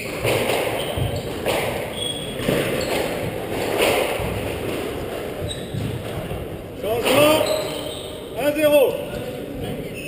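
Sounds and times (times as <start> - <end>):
squash ball cracks echoing: 0.0 - 7.4.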